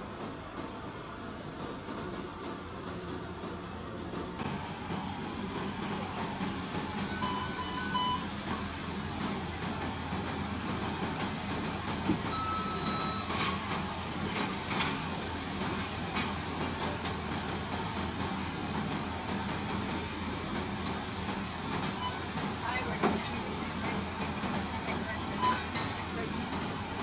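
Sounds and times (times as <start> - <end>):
short electronic beeps: 7.1 - 8.3, 12.3 - 13.4.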